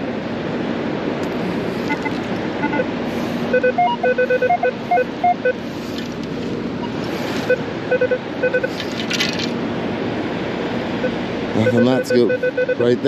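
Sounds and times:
metal detector beeps: 1.9s - 2.8s, 3.5s - 5.6s, 6.8s - 8.8s, 11.6s - 12.9s.

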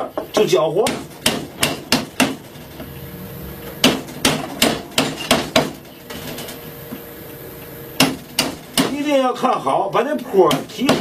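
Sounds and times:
chisel struck into wood: 0.8s - 2.4s, 3.8s - 5.8s, 8.0s - 9.0s, 10.5s - 11.0s.

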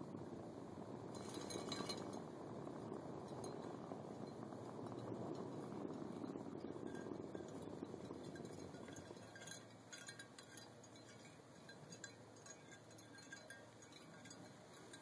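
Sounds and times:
faint low rumble: 0.0s - 15.0s
faint small clinks: 1.2s - 2.2s, 6.7s - 15.0s.

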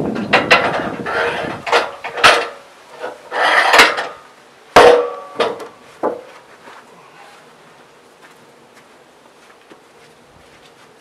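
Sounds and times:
board scraping slide: 1.0s - 2.0s, 3.0s - 4.2s
wood knocking on wood: 4.8s - 6.3s.

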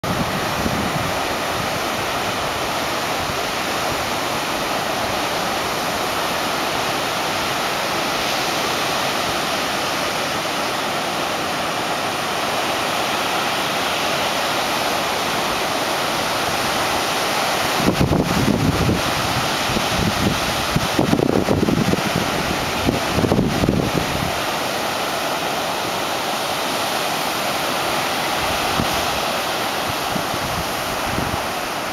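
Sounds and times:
wind buffeting microphone: 0.0s - 3.6s, 17.7s - 24.4s, 28.3s - 31.9s
ocean surf breaking: 0.0s - 31.9s.

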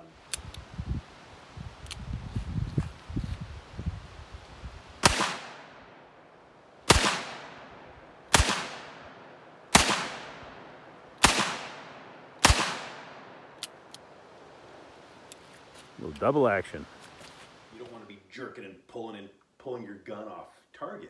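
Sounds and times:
revolver shots echoing: 6.9s - 13.4s.

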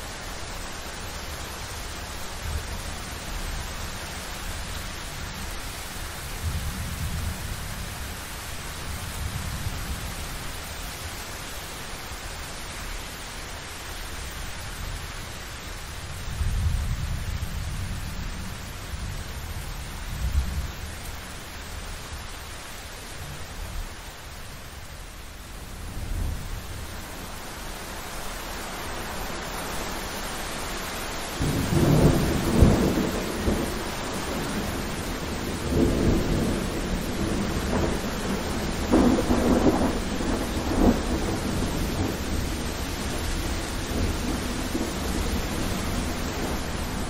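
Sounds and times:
heavy rain: 0.0s - 47.0s
thunder rumbling: 31.4s - 47.0s.

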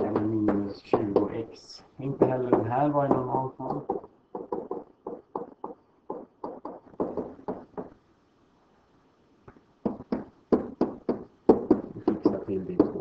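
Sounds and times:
stylus tapping on writing surface: 2.2s - 8.0s.

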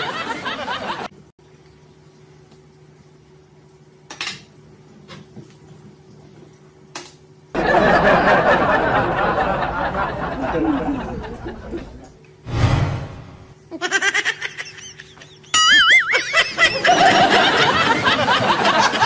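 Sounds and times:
faint steady hum: 0.0s - 12.4s, 13.3s - 19.0s
loud rushing noise: 12.5s - 13.5s.

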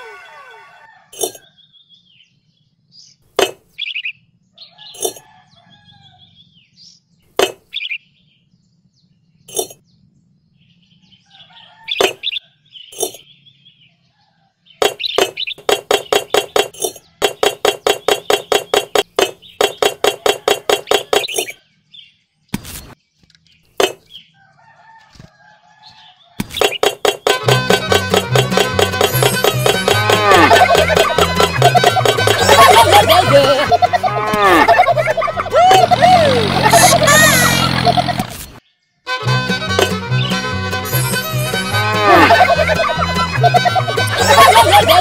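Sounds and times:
birds chirping: 1.2s - 24.4s, 25.9s - 45.0s
fast repeated notes: 15.6s - 21.3s, 26.7s - 38.3s, 39.1s - 45.0s.

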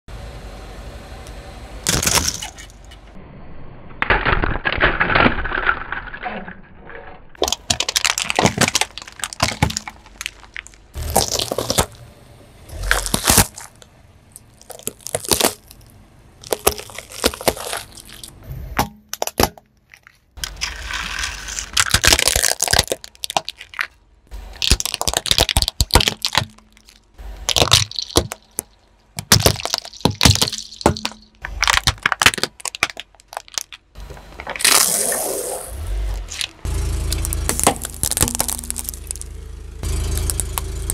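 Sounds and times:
plastic cracking under car tyre: 4.0s - 6.2s, 7.4s - 12.0s, 12.7s - 24.0s, 24.6s - 35.2s, 36.2s - 39.3s, 40.0s - 40.9s.

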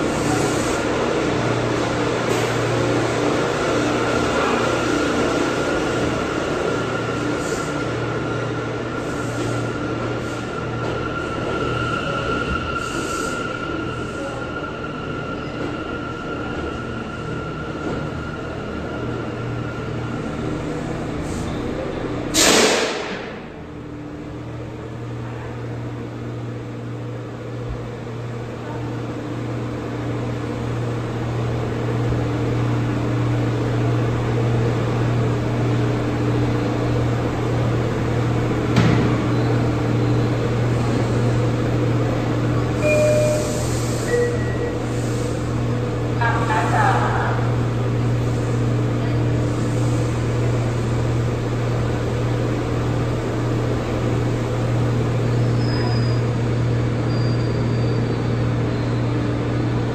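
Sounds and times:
train doors opening: 20.4s - 23.6s, 38.1s - 45.6s
hiss of released air: 22.4s - 23.0s, 43.4s - 44.1s
train equipment humming: 23.0s - 57.1s.

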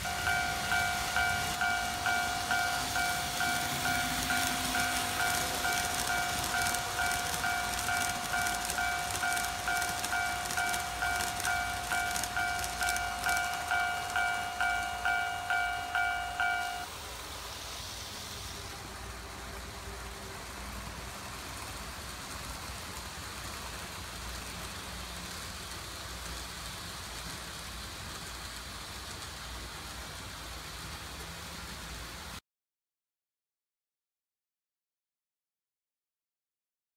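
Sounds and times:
crossing warning bell dinging: 0.0s - 16.9s
faint hum of model trains: 0.0s - 32.4s.

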